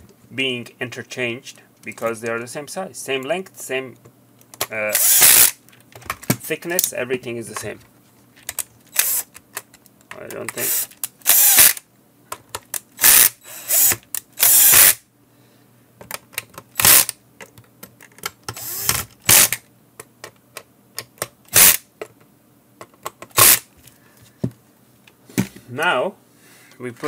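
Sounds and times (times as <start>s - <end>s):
cordless drill driving screws: 5.0s - 5.6s, 8.9s - 9.3s, 10.6s - 11.8s, 13.0s - 15.0s, 16.8s - 17.1s, 18.6s - 19.6s, 21.5s - 21.8s, 23.4s - 23.6s.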